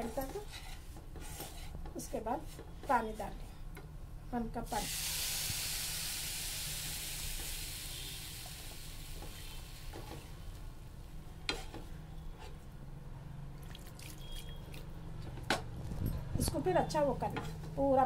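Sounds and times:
wooden spatula scraping a pan: 0:00.0 - 0:03.4, 0:11.4 - 0:12.6
water sizzling in a hot pan: 0:04.7 - 0:10.2.

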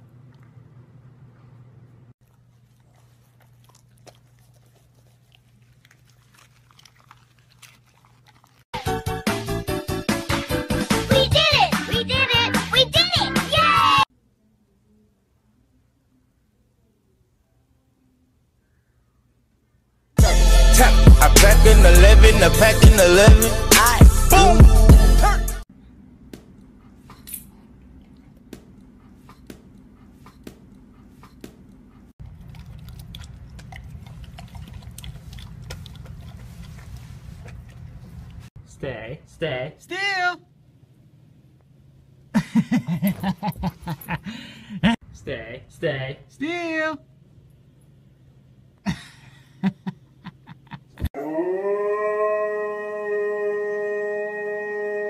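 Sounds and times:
dog crunching dry kibble: 0:02.2 - 0:08.7, 0:32.2 - 0:38.4
dog howling: 0:51.2 - 0:55.0.

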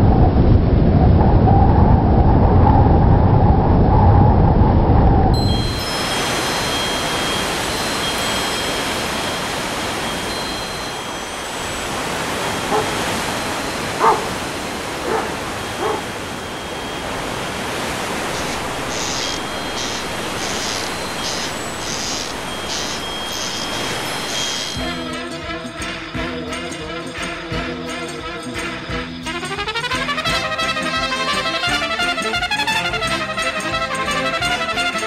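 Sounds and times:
outdoor hiss: 0:05.5 - 0:25.0
dog barking: 0:12.6 - 0:13.2, 0:14.0 - 0:14.4, 0:15.0 - 0:16.2.

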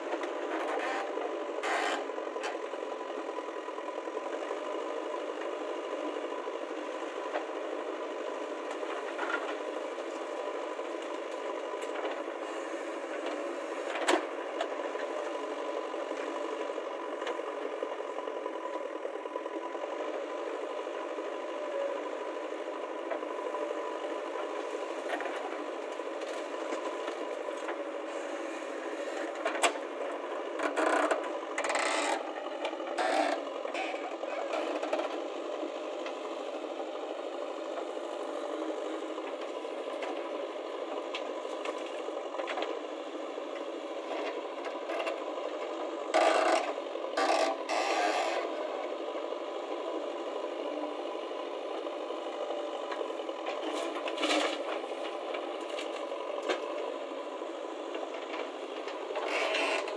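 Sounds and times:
backhoe digging soil: 0:00.0 - 0:03.4, 0:19.8 - 0:35.3, 0:44.0 - 0:49.0, 0:51.0 - 0:59.9
diesel engines running: 0:00.0 - 0:59.9.

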